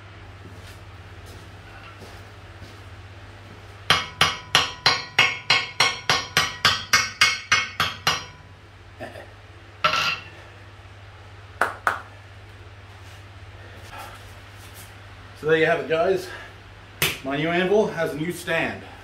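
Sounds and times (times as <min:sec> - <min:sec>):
hammer clattering on anvil: 0:03.9 - 0:08.4, 0:09.8 - 0:10.3
hammer ringing on anvil: 0:03.9 - 0:08.5.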